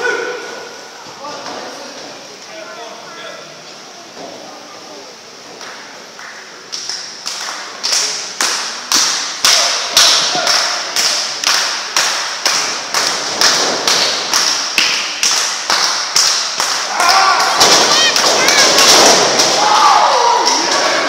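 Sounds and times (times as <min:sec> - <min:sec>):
rhythmic hand clapping: 0:05.6 - 0:20.9.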